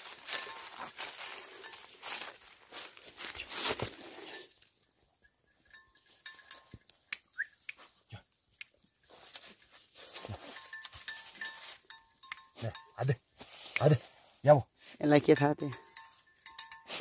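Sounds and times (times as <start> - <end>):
dry leaves rustling: 0.0 - 4.6, 9.0 - 12.0.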